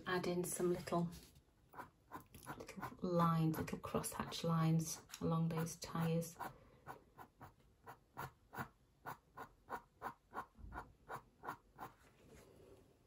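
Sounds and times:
pen nib scratching on paper: 1.7 - 12.0.

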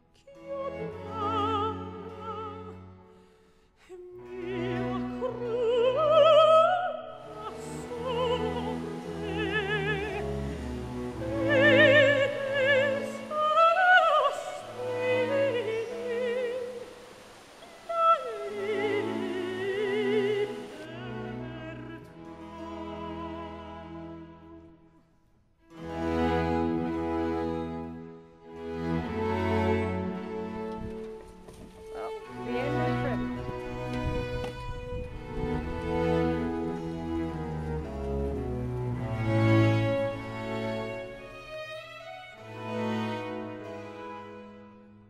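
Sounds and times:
orchestral accompaniment: 4.1 - 24.9, 25.6 - 45.0
operatic voice singing: 17.8 - 24.0.

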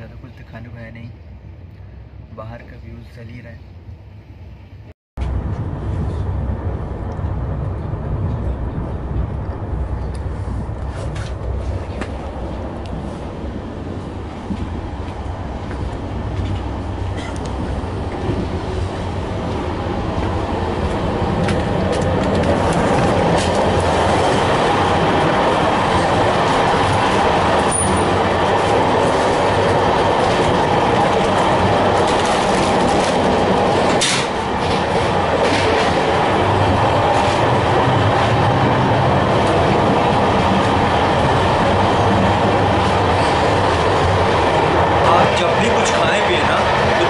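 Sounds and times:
train wheels rumbling on rail: 4.6 - 47.0
rail joint clicks and knocks: 14.3 - 47.0.

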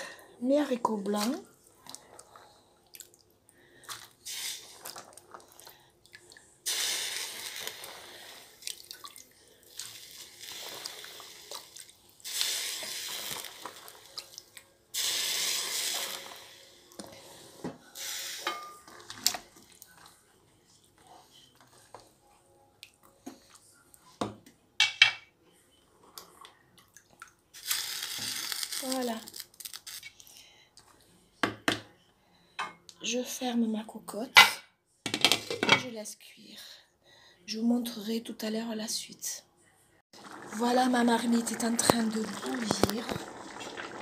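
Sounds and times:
beans splashing into pot: 40.2 - 44.0.

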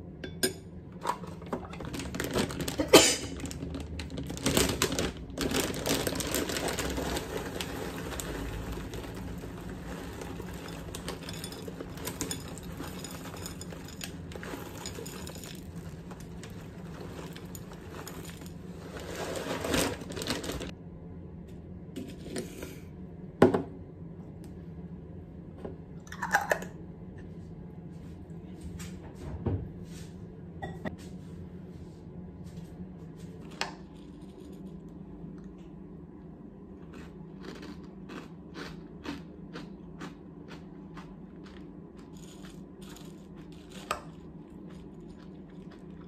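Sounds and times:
plastic bag rustling: 1.8 - 20.7
cereal pouring into glass bowl: 3.5 - 20.7.

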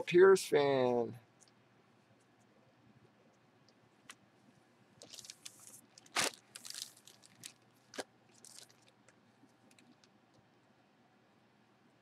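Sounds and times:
plastic bag crinkling: 5.0 - 10.1.

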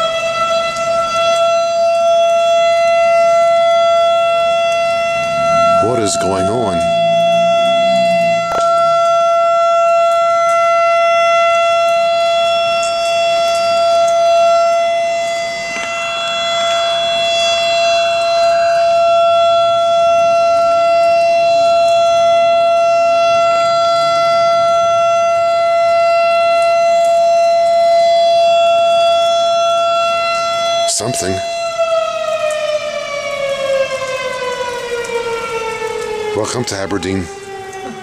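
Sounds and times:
air raid siren steady tone: 0.0 - 38.0.

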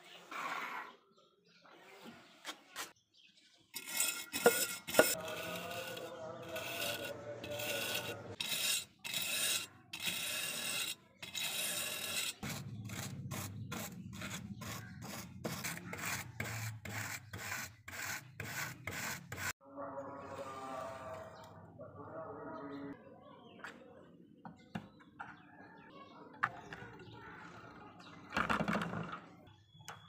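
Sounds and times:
wire brush scrubbing rusty steel: 3.8 - 19.5.

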